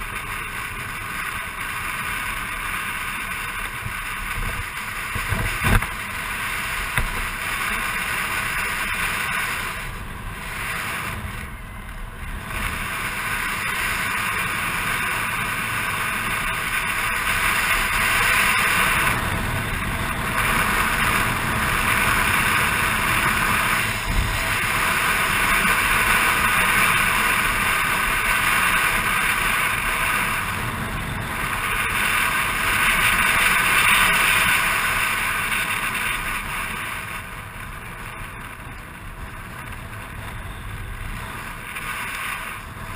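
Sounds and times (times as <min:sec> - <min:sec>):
motor scooter engine: 0:00.0 - 0:42.9
wind rushing over microphone: 0:00.0 - 0:42.9.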